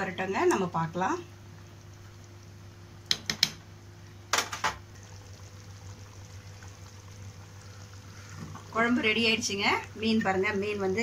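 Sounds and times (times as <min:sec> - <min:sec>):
curry bubbling: 0:00.0 - 0:11.0
low steady hum: 0:00.0 - 0:11.0.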